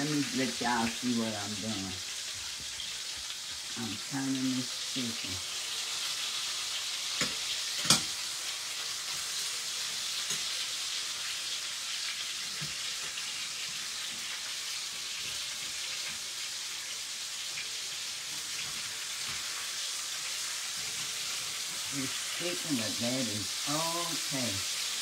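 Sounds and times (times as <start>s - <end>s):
chicken sizzling in oil: 0.0s - 25.0s
fork clinking on pan: 7.2s - 8.2s.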